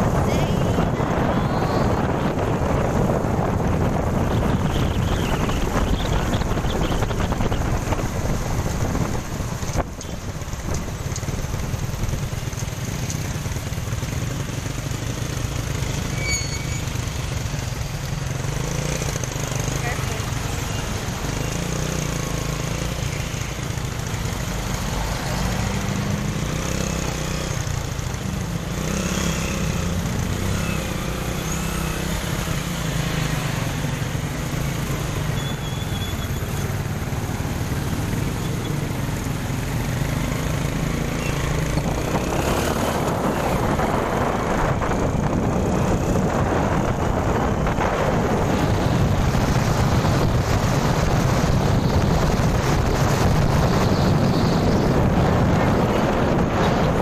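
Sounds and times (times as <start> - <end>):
wind rushing over microphone: 0.0 - 15.2, 36.8 - 57.0
motorcycle engine revving: 24.4 - 57.0.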